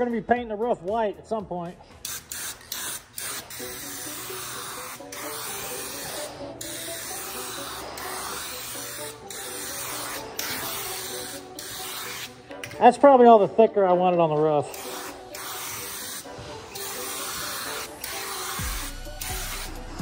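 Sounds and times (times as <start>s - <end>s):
background music: 0.0s - 20.0s
aerosol spray hissing: 2.0s - 12.4s, 14.7s - 20.0s.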